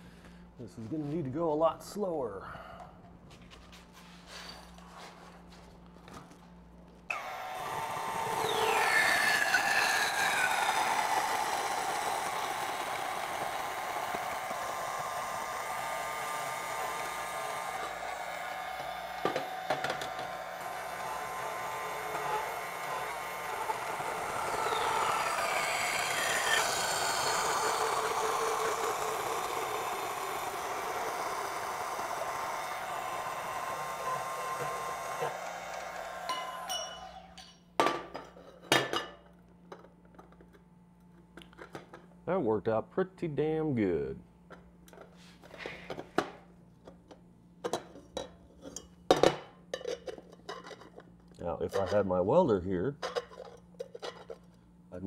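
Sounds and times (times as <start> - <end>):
bandsaw cutting metal tube: 7.1 - 37.6.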